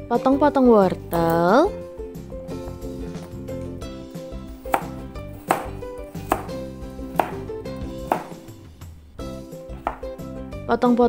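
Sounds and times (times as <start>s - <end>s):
knife chopping on cutting board: 4.5s - 8.5s, 9.8s - 10.2s.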